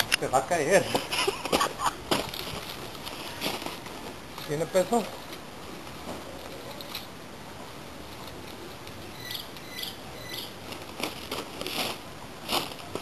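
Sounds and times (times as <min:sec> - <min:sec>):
bird chirping: 0:09.1 - 0:10.6.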